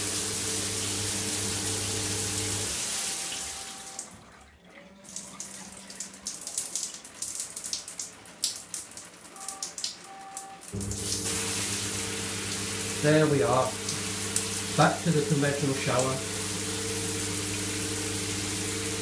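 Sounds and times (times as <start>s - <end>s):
shower hum: 0.0s - 19.0s
water spattering and dripping: 0.0s - 19.0s
short beeps: 9.4s - 10.6s
shower spray hiss: 10.9s - 19.0s.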